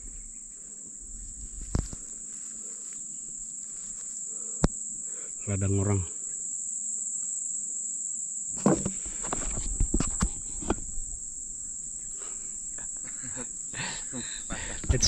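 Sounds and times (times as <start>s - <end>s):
insects droning: 0.0s - 15.0s
knocks and rustles: 8.5s - 11.1s.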